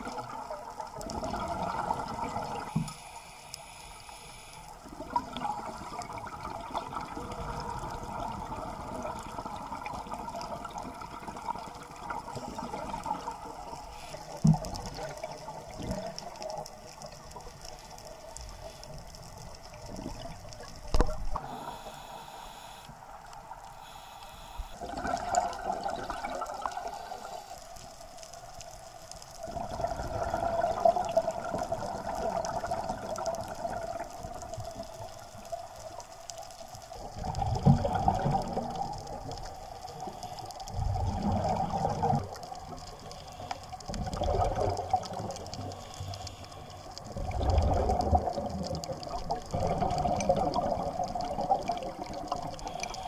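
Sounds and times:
underwater regulator exhalation bubbles: 1.0s - 2.8s, 5.0s - 13.8s, 24.8s - 27.3s, 29.4s - 34.1s, 37.0s - 39.6s, 40.7s - 42.5s, 43.9s - 45.8s, 47.1s - 53.0s.

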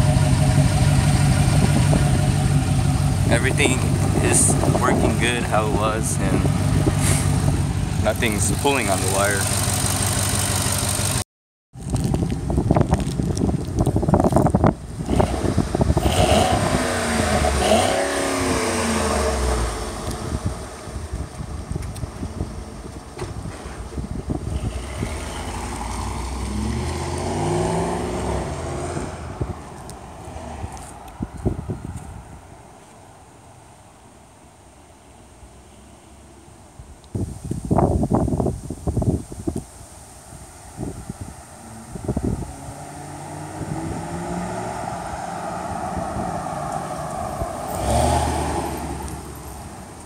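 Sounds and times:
pickup truck vn engine exhaust: 0.0s - 11.2s, 11.9s - 29.7s, 40.8s - 50.0s.

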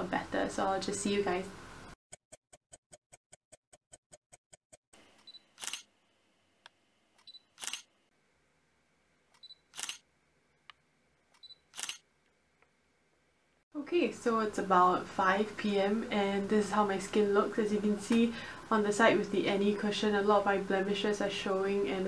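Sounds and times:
camera focus beep: 5.2s - 5.8s, 7.2s - 7.9s, 9.4s - 10.0s, 11.4s - 12.0s
camera shutter click: 5.6s - 5.9s, 7.2s - 7.9s, 9.7s - 10.0s, 11.7s - 12.0s.

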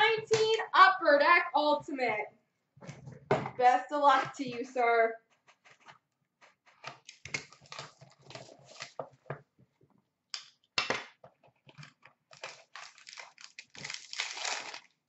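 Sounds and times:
cardboard packaging being torn: 12.3s - 15.0s.

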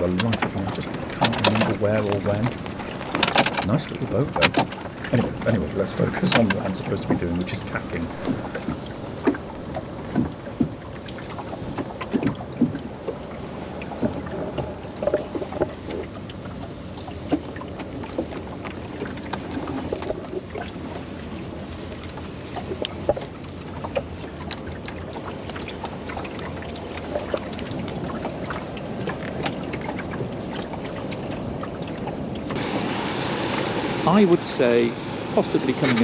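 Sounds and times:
clicks of boat lines and fittings: 0.0s - 10.7s
water rushing along hull: 0.0s - 36.0s.

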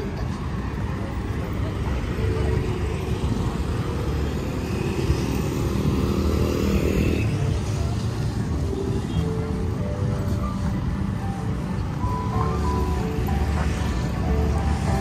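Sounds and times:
vehicle engines passing: 0.0s - 15.0s.

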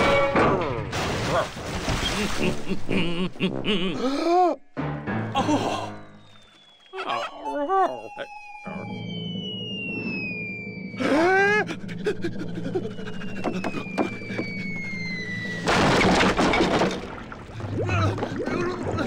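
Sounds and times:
cartoon falling whistle: 6.1s - 11.6s
loud crash: 15.6s - 17.3s.

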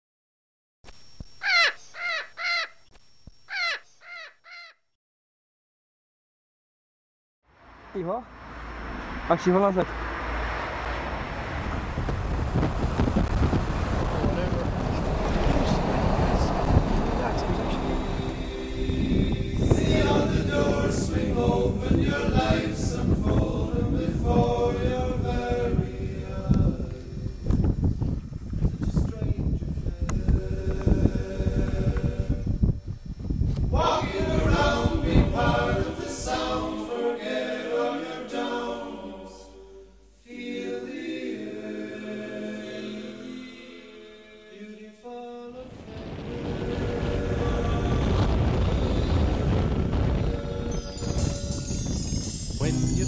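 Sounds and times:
crow cawing: 1.4s - 2.8s, 3.5s - 4.8s
steady low rumble: 10.8s - 36.7s, 45.7s - 52.0s
music with singing voices: 49.5s - 53.0s.

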